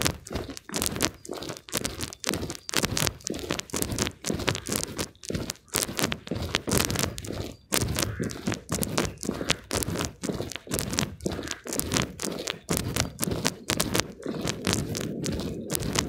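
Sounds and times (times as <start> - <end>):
footsteps crunching on frost: 0.0 - 16.0.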